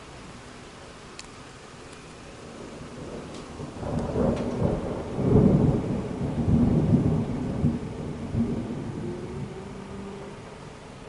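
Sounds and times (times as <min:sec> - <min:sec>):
heavy rain hiss: 0:00.0 - 0:11.0
thunder rumbling: 0:02.4 - 0:11.0.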